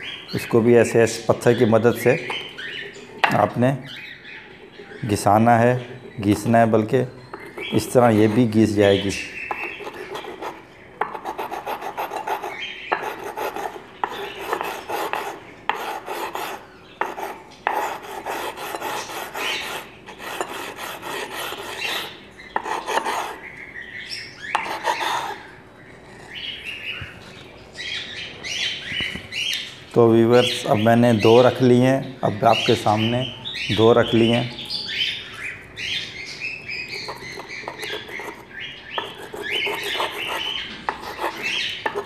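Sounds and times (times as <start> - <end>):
stone grinding peppercorn: 9.5 - 23.4, 24.6 - 25.4, 36.9 - 42.0.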